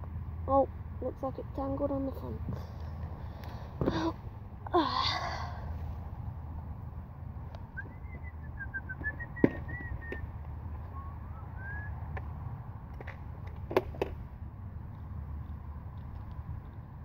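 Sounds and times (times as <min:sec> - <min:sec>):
steady low rumble: 0:00.0 - 0:17.0
bird chirping whistled notes: 0:07.7 - 0:12.0.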